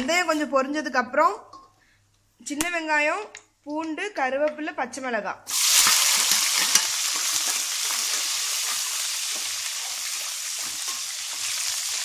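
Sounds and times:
vegetables sizzling in hot oil: 5.5 - 12.0
steel ladle stirring: 5.6 - 12.0.

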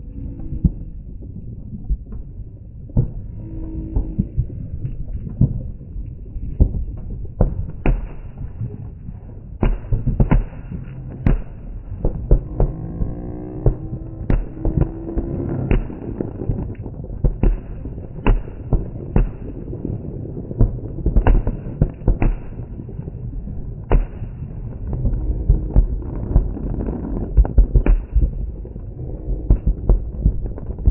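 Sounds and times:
rumble of distant explosions: 0.0 - 30.9
fireworks bangs: 9.6 - 23.2, 23.8 - 30.9.

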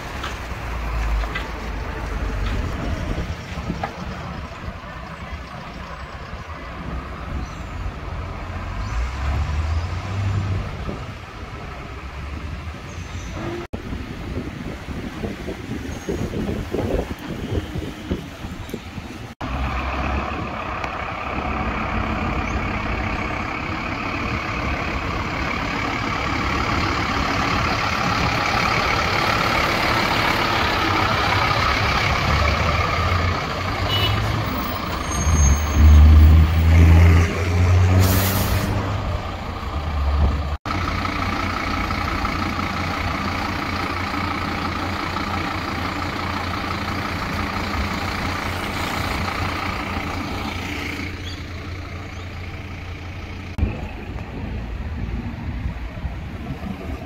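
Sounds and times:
truck diesel engine running: 19.0 - 37.0, 37.8 - 57.0
air brake hiss: 37.9 - 38.9.

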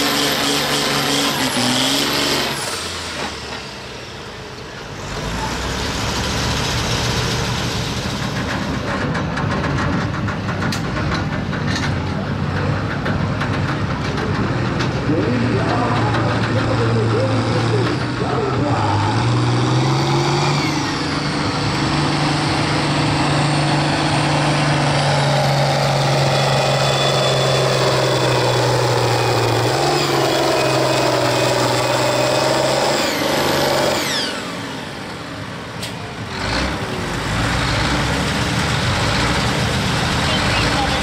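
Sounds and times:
diesel engine running hard: 0.0 - 41.0
high turbo whine: 15.0 - 41.0.

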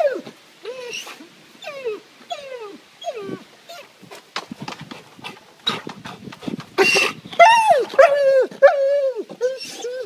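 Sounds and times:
dog whining: 0.0 - 3.9, 6.8 - 10.0.

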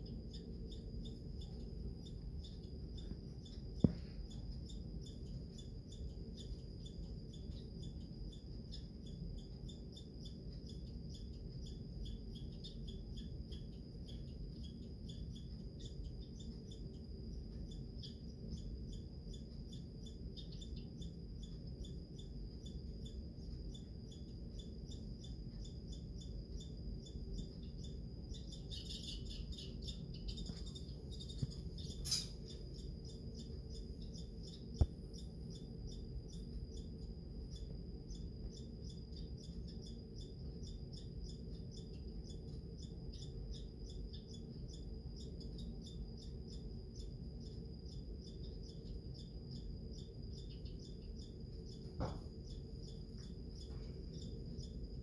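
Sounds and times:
squirrel chattering: 27.8 - 36.8.

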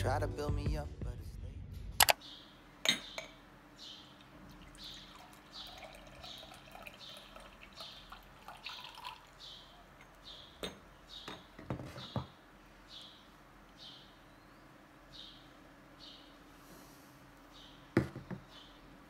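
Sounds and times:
tea pouring into ceramic mug: 4.5 - 9.4
teapot knocking on table: 18.0 - 18.4.

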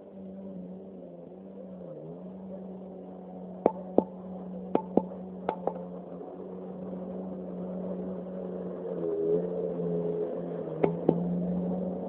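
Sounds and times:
jet ski engine droning: 0.0 - 12.0.

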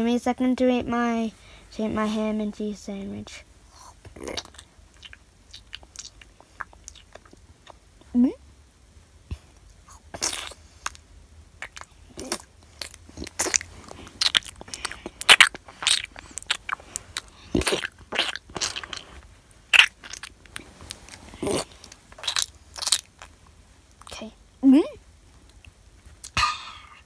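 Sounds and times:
mouth-made crunchy chomping: 11.6 - 23.3.

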